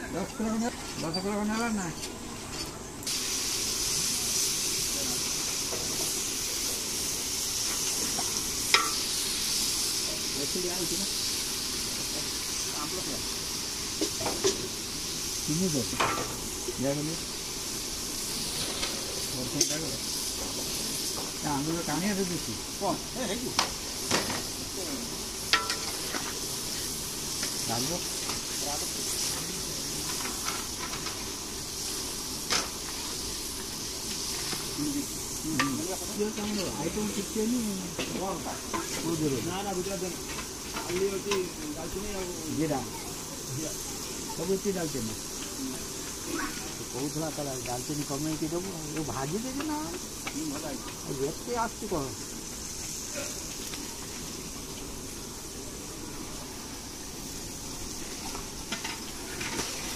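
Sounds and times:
food sizzling in an iron pan: 0:00.0 - 0:59.9
steam and fire hissing: 0:00.0 - 0:59.9.

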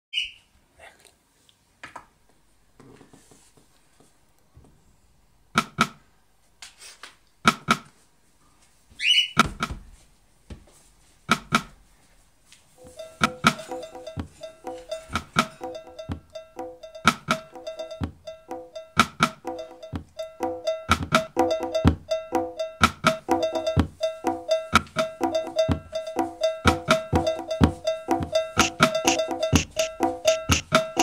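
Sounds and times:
drum machine hits: 0:05.6 - 0:06.0, 0:07.5 - 0:07.8, 0:09.4 - 0:09.8, 0:11.3 - 0:11.8, 0:12.8 - 0:31.0
stepping synth sequence: 0:12.8 - 0:31.0.

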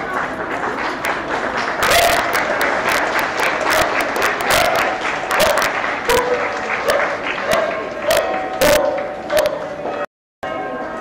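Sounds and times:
murmur of voices: 0:00.0 - 0:09.8
crowd clapping: 0:00.0 - 0:09.9.

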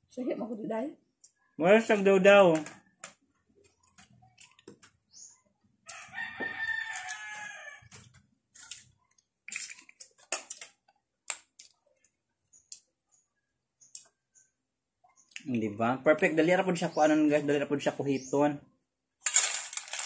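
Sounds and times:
rooster crowing: 0:05.9 - 0:08.0
people eating smacking sounds: 0:07.9 - 0:13.0.

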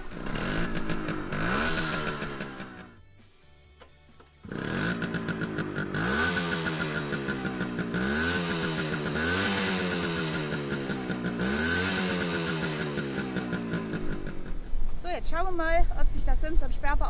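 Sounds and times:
two-stroke engine revving: 0:00.0 - 0:03.0, 0:04.4 - 0:14.7.

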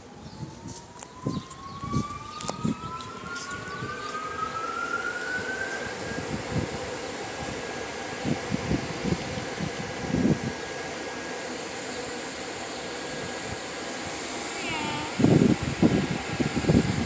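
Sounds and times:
whine rising in pitch: 0:00.0 - 0:06.8.

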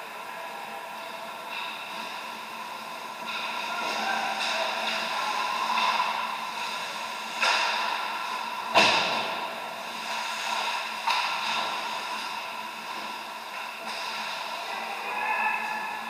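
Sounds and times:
steady arena hum: 0:00.0 - 0:16.0
hockey puck and stick impacts: 0:07.3 - 0:08.1, 0:10.4 - 0:12.2.

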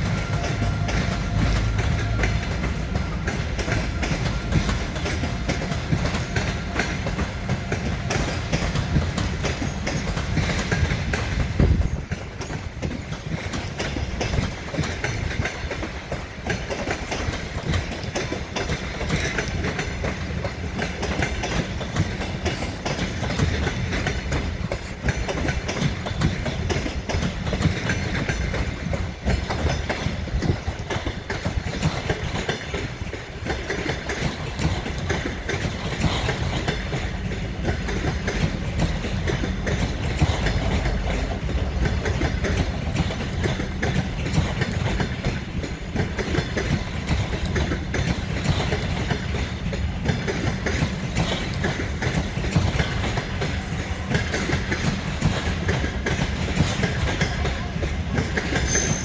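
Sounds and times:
train wheels clattering over rail joints: 0:00.0 - 0:59.0.

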